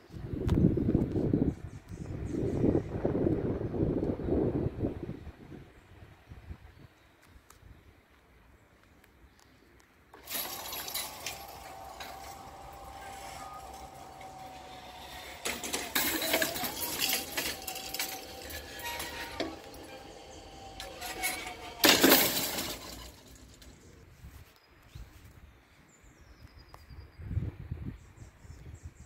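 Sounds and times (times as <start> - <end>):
level crossing warning bell: 10.2 - 21.0.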